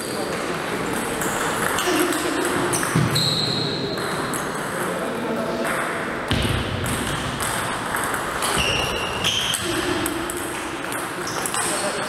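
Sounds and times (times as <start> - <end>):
high-pitched squeak: 3.1 - 3.7.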